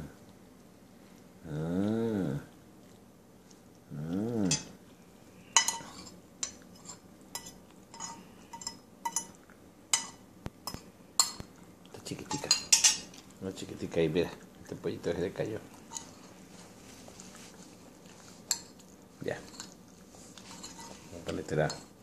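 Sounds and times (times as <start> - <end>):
metal spoon clinking in ceramic bowl: 5.6 - 10.2, 12.3 - 13.0.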